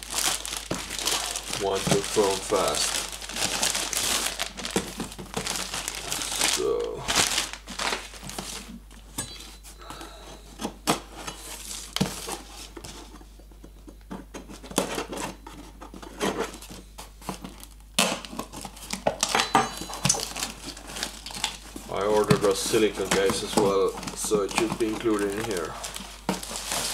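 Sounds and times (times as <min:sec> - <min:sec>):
plastic mailer bag crinkling: 0:00.0 - 0:08.8, 0:17.4 - 0:26.9.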